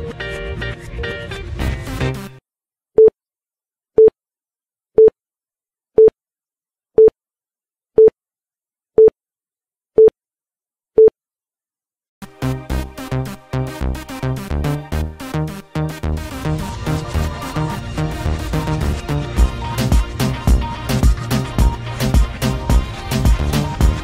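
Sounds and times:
background music: 0:00.0 - 0:02.4, 0:12.2 - 0:24.0
electronic dance music: 0:01.6 - 0:02.4, 0:12.2 - 0:24.0.

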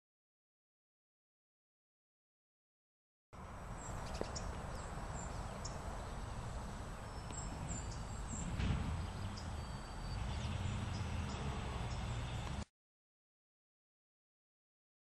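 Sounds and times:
birds chirping: 0:03.4 - 0:12.6
steady low rumble: 0:03.4 - 0:12.6.

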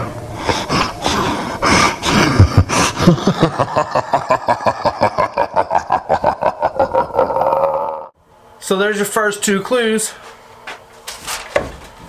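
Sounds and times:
man laughing loudly: 0:01.9 - 0:08.1.

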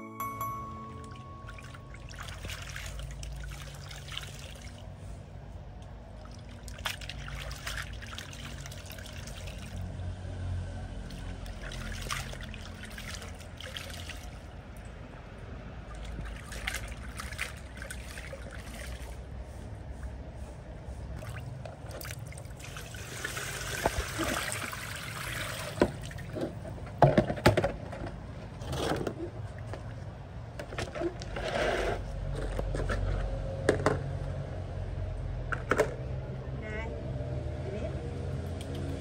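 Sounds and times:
low steady rumble: 0:00.0 - 0:39.0
water splashing and sloshing: 0:00.9 - 0:36.2, 0:38.2 - 0:39.0
water dripping into basin: 0:01.0 - 0:04.8, 0:38.4 - 0:39.0.

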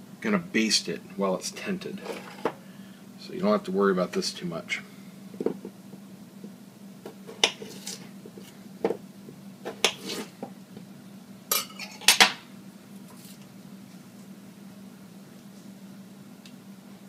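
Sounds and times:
metal knife clinking on dishes: 0:11.5 - 0:12.3.

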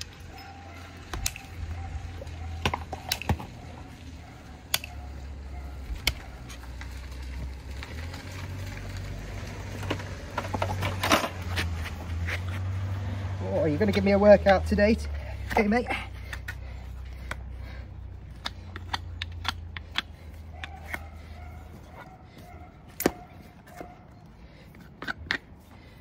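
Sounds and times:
hoof nippers clicking: 0:16.2 - 0:24.0.

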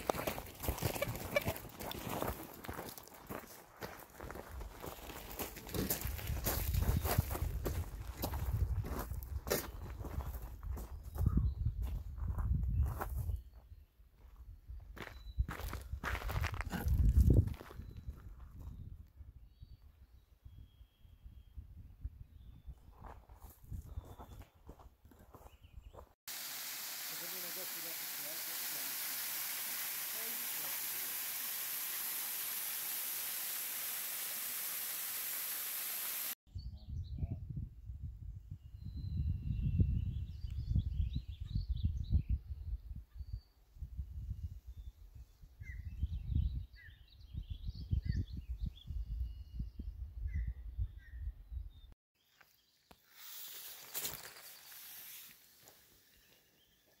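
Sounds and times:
waterfall rushing: 0:26.3 - 0:36.4.

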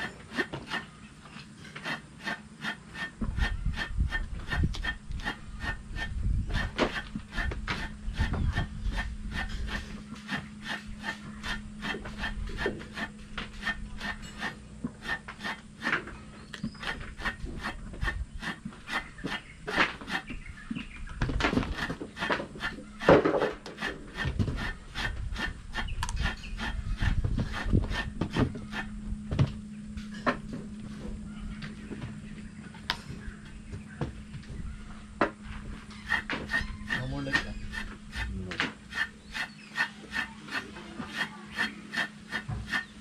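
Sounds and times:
can edge scraping fruit skin: 0:00.0 - 0:01.0, 0:01.7 - 0:20.4, 0:21.5 - 0:28.9, 0:35.9 - 0:43.0.

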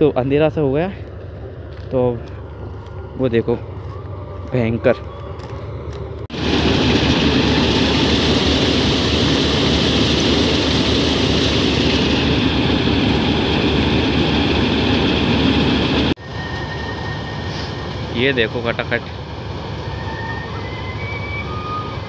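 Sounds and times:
combine harvester running: 0:01.1 - 0:16.6.

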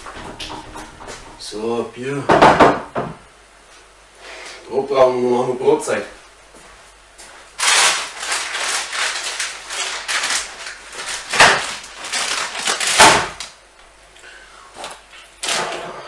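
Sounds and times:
knocks on wooden table: 0:02.3 - 0:03.2
paper wrapping rustling: 0:07.6 - 0:13.6.

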